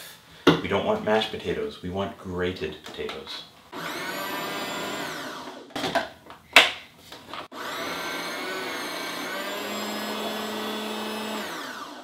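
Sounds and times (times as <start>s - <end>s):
food processor motor whine: 3.7s - 5.8s, 7.3s - 12.0s.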